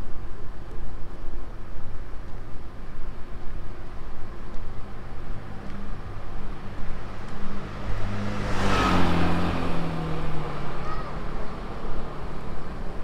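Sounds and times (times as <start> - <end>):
traffic engine hum: 0.2 - 13.0
vehicle passing close: 6.7 - 11.3.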